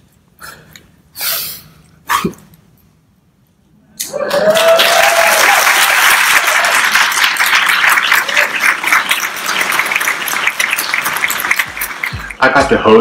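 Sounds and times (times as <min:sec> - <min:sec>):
audience applauding: 0:04.1 - 0:12.9.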